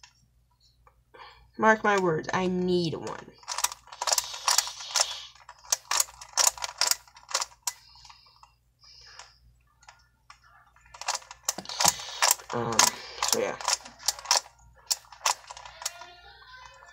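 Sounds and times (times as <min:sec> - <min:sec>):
plastic puzzle pieces clicking: 0:03.4 - 0:08.2, 0:10.9 - 0:16.8.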